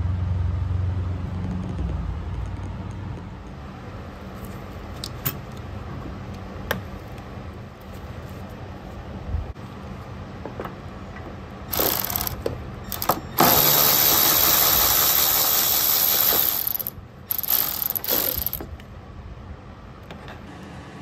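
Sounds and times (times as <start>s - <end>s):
cordless electric ratchet spinning: 11.7s - 18.7s.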